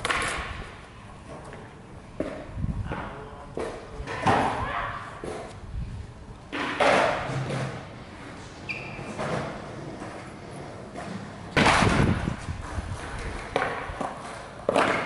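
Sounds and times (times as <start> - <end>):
skateboard clacking on concrete: 0.0 - 5.6, 6.5 - 8.0, 9.1 - 15.0
brief high squeak: 8.6 - 9.2.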